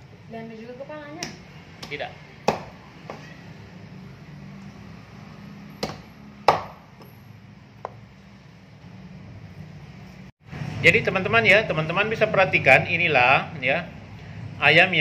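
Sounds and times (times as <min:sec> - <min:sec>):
knife chopping on wooden block: 0:01.2 - 0:03.3, 0:05.8 - 0:07.1.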